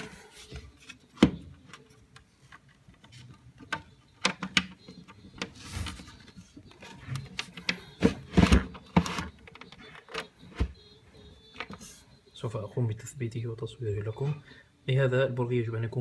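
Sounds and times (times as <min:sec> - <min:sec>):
plastic fitting clicks and taps: 0:01.2 - 0:05.5.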